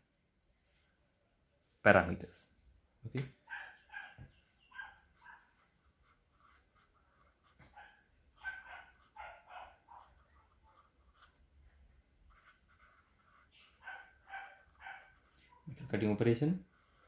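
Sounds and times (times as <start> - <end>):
marker squeaking on paper: 3.6 - 11.4, 12.3 - 15.7, 16.7 - 17.0.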